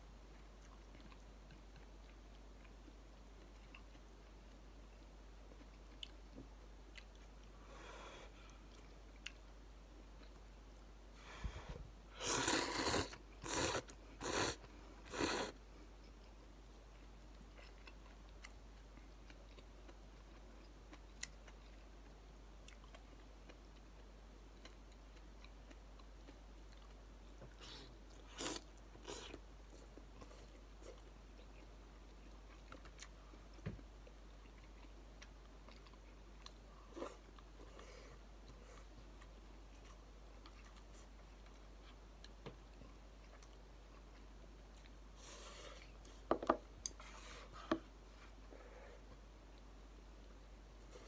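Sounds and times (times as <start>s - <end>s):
quiet chewing: 0.1s - 10.8s, 12.3s - 51.0s
person slurping noodles: 12.2s - 15.6s.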